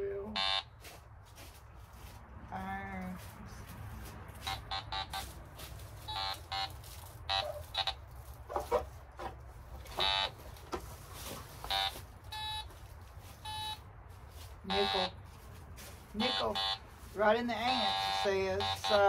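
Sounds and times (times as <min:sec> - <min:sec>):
metal detector beeps: 0:00.4 - 0:00.7, 0:04.4 - 0:05.3, 0:06.1 - 0:08.0, 0:09.9 - 0:10.4, 0:11.6 - 0:12.7, 0:13.4 - 0:13.8, 0:14.7 - 0:15.2, 0:16.2 - 0:16.8, 0:17.6 - 0:19.0.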